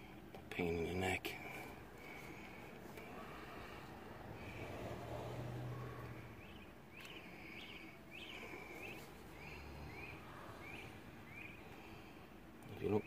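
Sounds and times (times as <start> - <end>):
bird chirping: 5.9 - 13.0.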